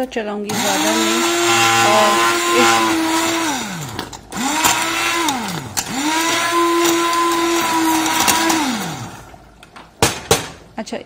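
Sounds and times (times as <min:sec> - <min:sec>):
immersion blender running: 0:00.5 - 0:09.5.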